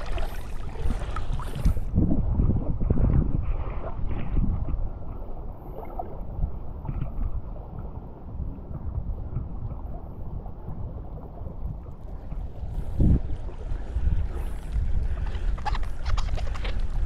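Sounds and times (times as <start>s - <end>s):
seawater sloshing and lapping: 0.0s - 2.0s, 12.0s - 17.0s
wind rumble on microphone: 0.0s - 17.0s.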